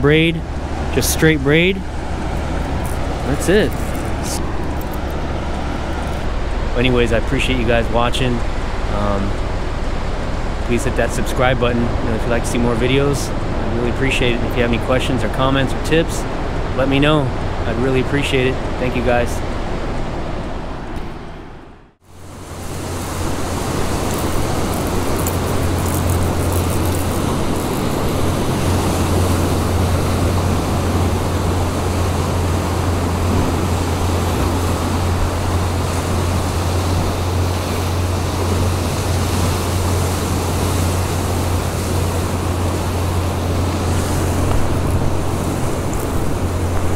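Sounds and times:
ocean surf breaking on rocks: 22.2 - 46.9.

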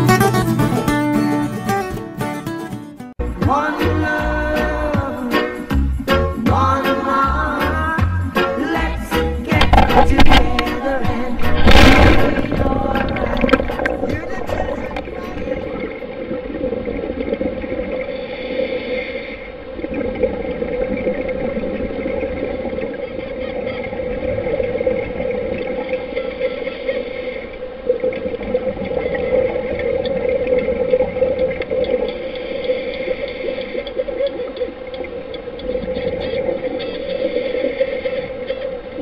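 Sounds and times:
muffled underwater rushing: 9.0 - 39.0
scuba exhaust bubbles: 9.6 - 26.5, 27.4 - 39.0.

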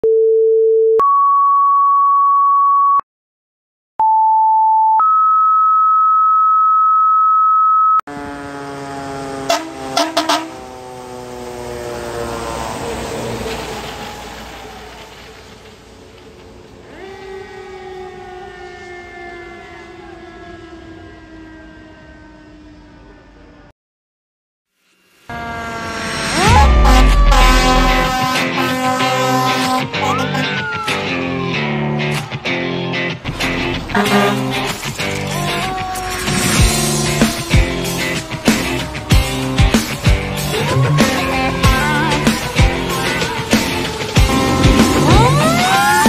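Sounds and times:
truck horn blasts: 8.1 - 10.9, 25.3 - 30.4, 33.8 - 34.8, 44.3 - 45.6
fire truck siren: 8.1 - 23.7, 25.2 - 46.0.

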